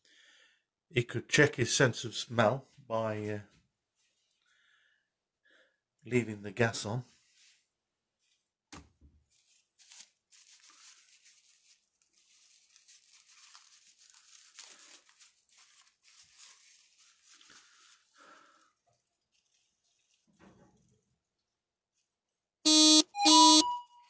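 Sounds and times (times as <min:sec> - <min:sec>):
faint rustling: 0:09.3 - 0:22.1.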